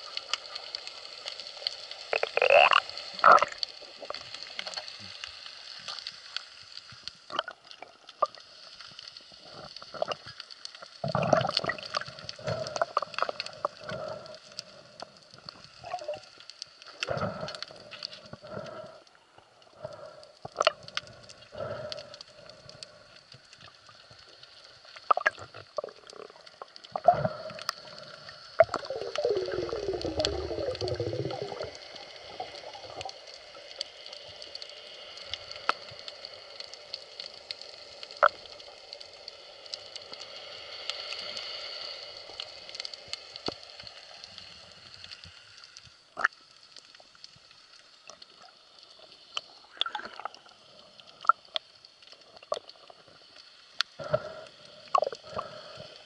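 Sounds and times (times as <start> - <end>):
underwater hiss and hum: 0.0 - 56.0.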